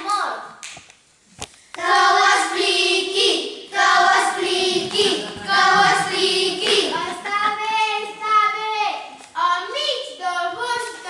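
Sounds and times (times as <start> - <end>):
children singing together: 1.8 - 8.2.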